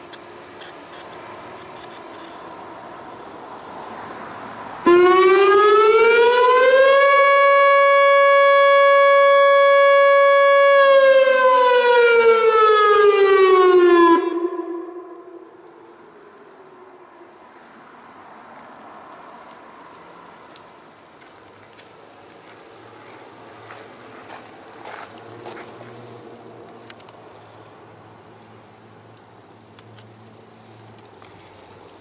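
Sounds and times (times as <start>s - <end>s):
electronic siren wailing: 4.9s - 15.7s.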